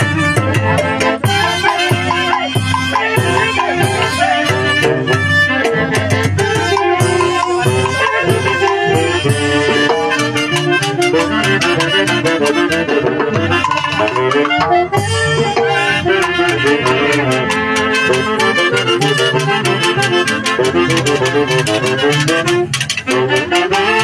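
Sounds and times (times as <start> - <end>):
loud festive dance music: 1.4 - 6.1.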